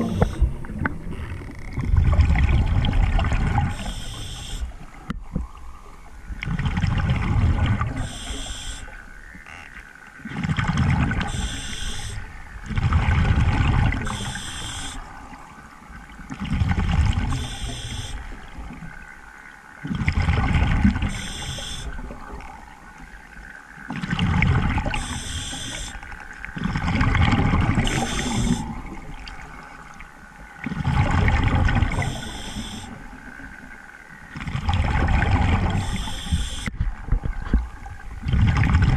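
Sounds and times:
exhaled bubbles rumbling: 0.0 - 9.2, 10.2 - 19.2, 19.8 - 38.9
regulator inhale hiss: 3.7 - 4.7, 8.0 - 8.9, 11.3 - 12.3, 14.1 - 15.0, 21.1 - 22.0, 25.0 - 26.0, 27.9 - 28.7, 32.0 - 33.0, 35.8 - 36.7.

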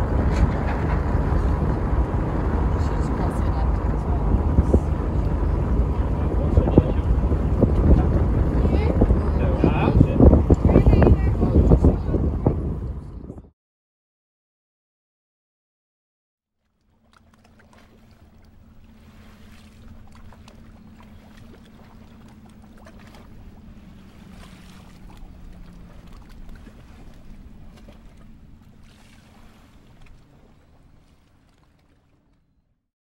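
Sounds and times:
water rushing along hull: 0.0 - 13.4, 16.6 - 32.8
low engine drone: 0.0 - 13.5, 16.8 - 32.6
wind noise: 0.0 - 13.5.

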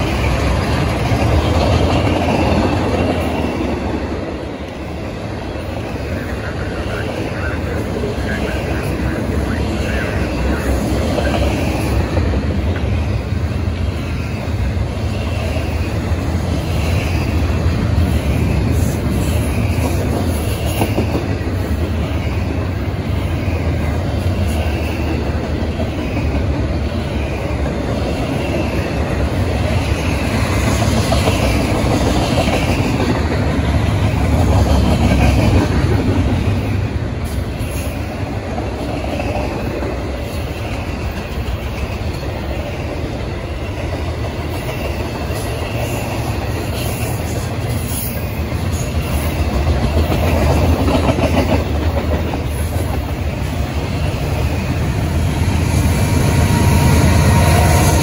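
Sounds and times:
freight train wheels on rails: 0.0 - 58.0.

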